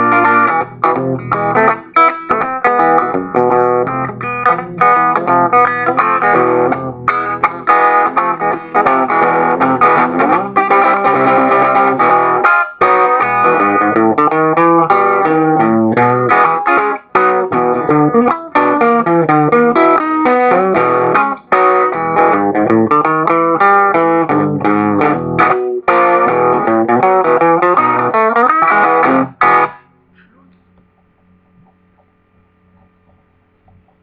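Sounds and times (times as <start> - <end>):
electric guitar boogie tune: 0.0 - 30.0
faint hum: 29.8 - 34.0.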